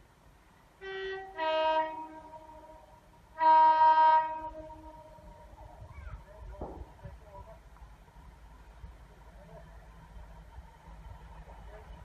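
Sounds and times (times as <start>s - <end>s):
two-tone train horn: 0.8s - 5.6s.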